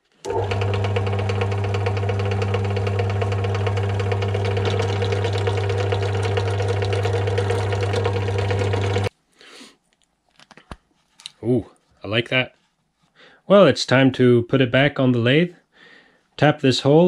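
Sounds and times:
drill press drilling brass: 0:00.1 - 0:09.1.

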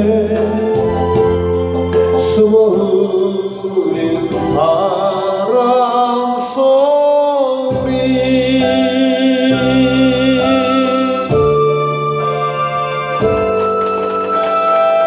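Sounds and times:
person singing with vibrato: 0:00.0 - 0:11.9
bass and keyboard backing track: 0:00.0 - 0:15.0.

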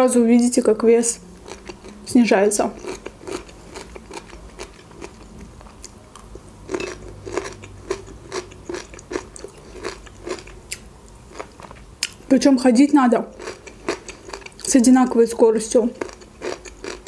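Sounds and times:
person chewing crunchy food: 0:01.4 - 0:12.2, 0:13.3 - 0:14.8, 0:16.0 - 0:17.0.

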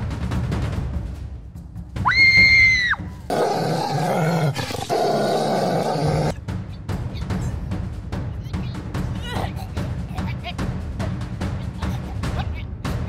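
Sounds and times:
shrill rising cry: 0:02.0 - 0:06.3
rough monster growl: 0:03.3 - 0:06.4.

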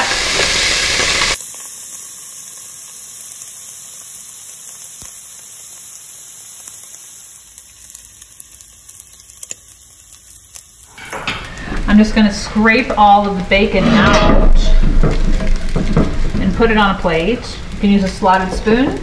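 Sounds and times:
meat sizzling in a pot: 0:00.0 - 0:19.0
crackling fat pops: 0:06.7 - 0:10.9.

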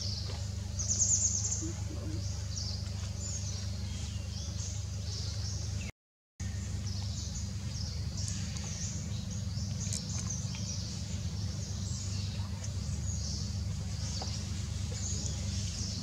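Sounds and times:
small birds chirping: 0:00.0 - 0:16.0
steady low rumble: 0:06.4 - 0:16.0.

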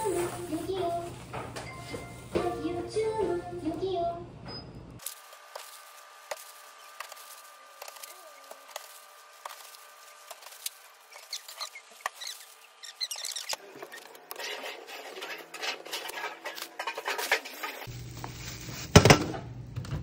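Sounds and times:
plastic bags crinkling: 0:05.0 - 0:14.5.

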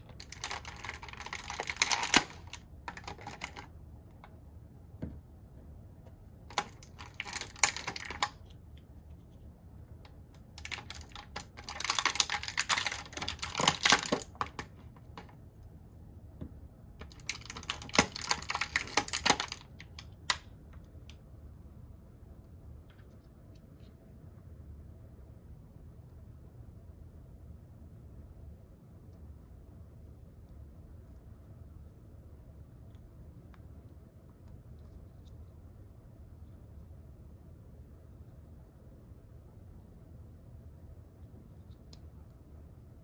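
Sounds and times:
plastic packaging crinkling and clicking: 0:00.1 - 0:03.7, 0:06.5 - 0:08.4, 0:10.4 - 0:15.3, 0:17.0 - 0:20.5.

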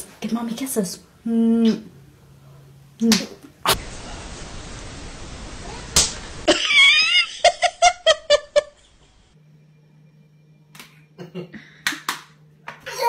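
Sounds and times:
slap on skin: 0:03.0 - 0:03.4, 0:06.0 - 0:06.2, 0:10.7 - 0:11.0, 0:11.8 - 0:12.8
small child giggling: 0:06.5 - 0:08.8.

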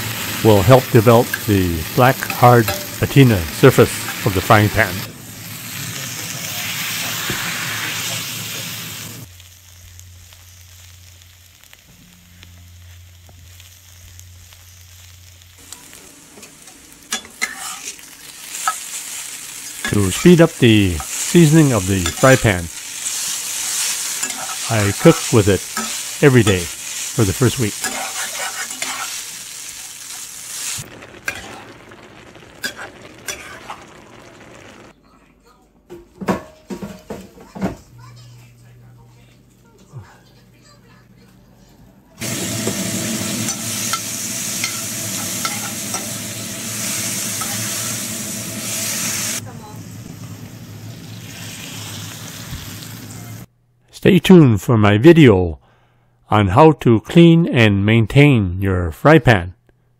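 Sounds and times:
food sizzling in a pan: 0:00.0 - 0:34.9, 0:42.2 - 0:53.5.

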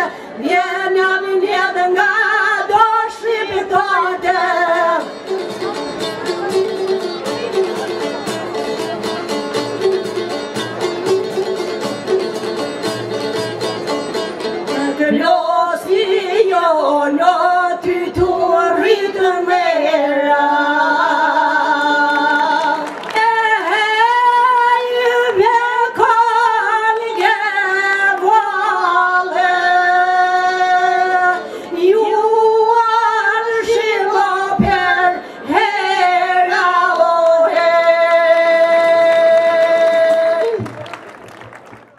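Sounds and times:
women singing folk song: 0:00.0 - 0:05.6, 0:14.8 - 0:40.6.

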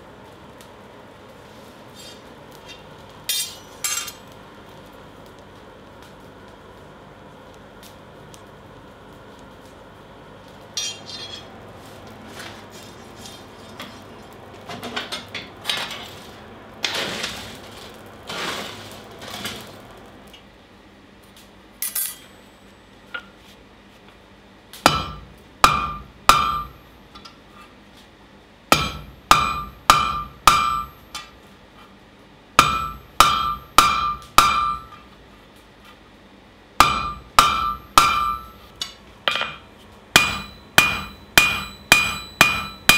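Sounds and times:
hammer striking steel on anvil: 0:02.7 - 0:04.2, 0:10.8 - 0:11.5, 0:21.8 - 0:22.5, 0:24.8 - 0:27.4, 0:28.7 - 0:31.4, 0:32.6 - 0:35.1, 0:36.8 - 0:42.9
metal clinks and scraping: 0:10.8 - 0:11.5, 0:21.8 - 0:22.6.

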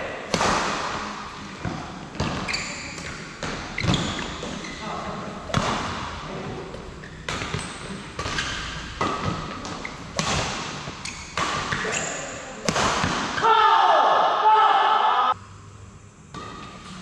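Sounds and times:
rackets striking shuttlecock: 0:07.3 - 0:13.4.

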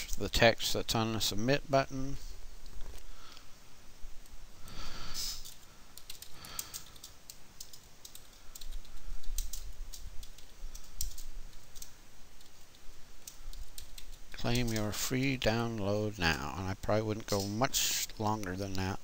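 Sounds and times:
keyboard typing clicks: 0:05.4 - 0:14.9.

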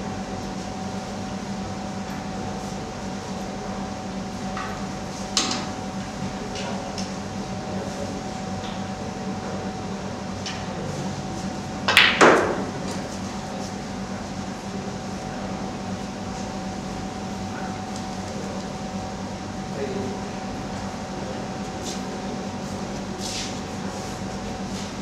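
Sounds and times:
steady low hum: 0:00.0 - 0:25.0
snooker balls clacking: 0:11.9 - 0:12.8.

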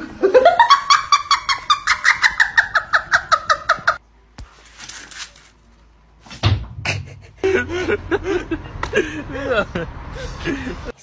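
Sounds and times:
woman cackling laughter: 0:00.2 - 0:04.0.

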